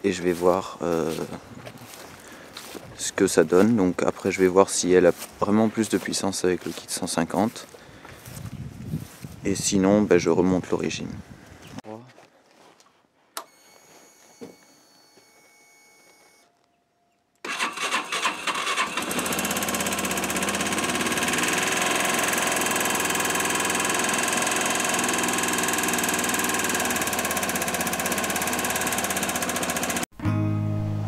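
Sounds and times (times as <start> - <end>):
motorcycle engine cold starting: 17.4 - 30.1.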